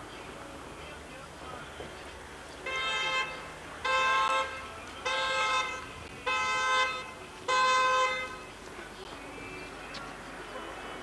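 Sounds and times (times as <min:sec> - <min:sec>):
vehicle horn toots: 0:02.6 - 0:08.4.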